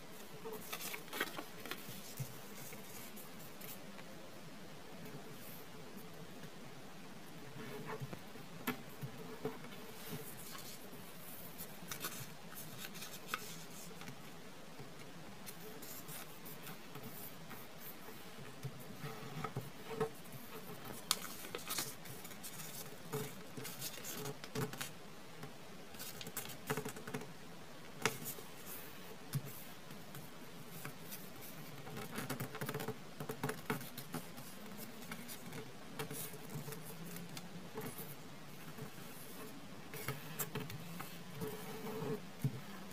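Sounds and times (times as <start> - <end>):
paper being folded and creased: 0.2 - 3.8, 11.6 - 14.1, 20.2 - 24.9.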